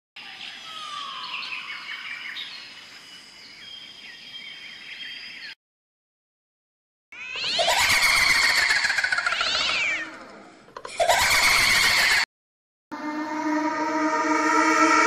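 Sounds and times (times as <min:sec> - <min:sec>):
birds chirping and calling: 0:00.2 - 0:05.6, 0:07.2 - 0:10.1
steady high whine: 0:12.9 - 0:15.0.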